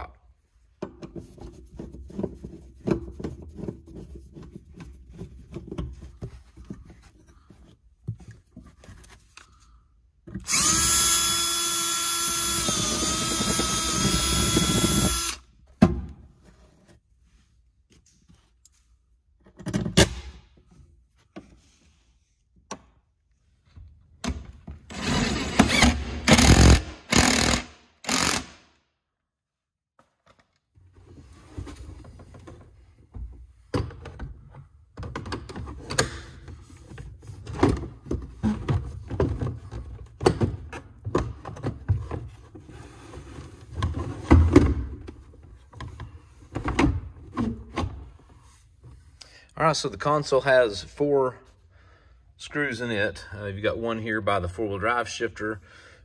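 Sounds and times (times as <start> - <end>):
power drill drilling plastic: 10.5 - 15.4, 24.9 - 28.6.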